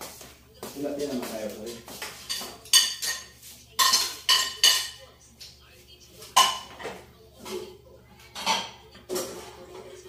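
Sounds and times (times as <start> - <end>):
cutlery clinking on ceramic bowls: 1.9 - 5.0, 8.3 - 9.5.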